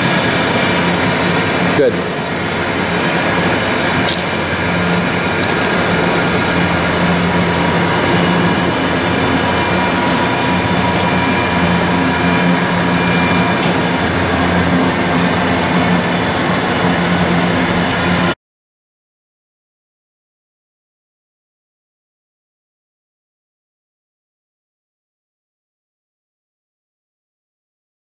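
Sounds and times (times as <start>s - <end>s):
surface grinder humming: 0.0s - 18.4s.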